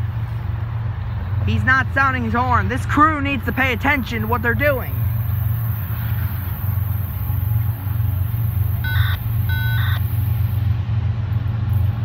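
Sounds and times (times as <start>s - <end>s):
low engine rumble: 0.0s - 12.0s
short electronic beeps: 8.8s - 10.0s.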